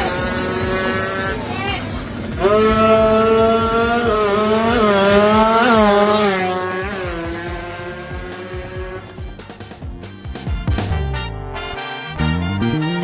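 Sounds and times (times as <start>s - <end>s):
motorcycle engine revving high: 0.0s - 9.9s.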